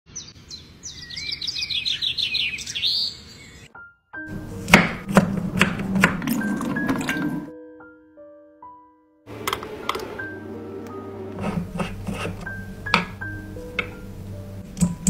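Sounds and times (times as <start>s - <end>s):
bird twittering: 0.1s - 3.7s
music with soft held notes: 3.7s - 15.0s
knife chopping on wooden board: 4.6s - 6.2s, 11.4s - 14.0s.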